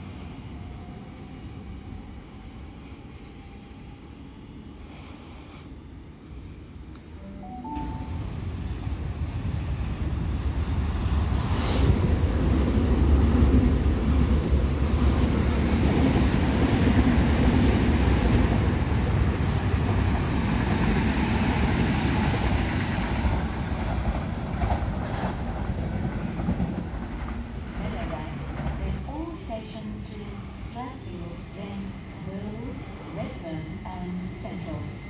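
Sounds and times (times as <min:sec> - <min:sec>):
train rolling rumble: 0:00.0 - 0:35.0.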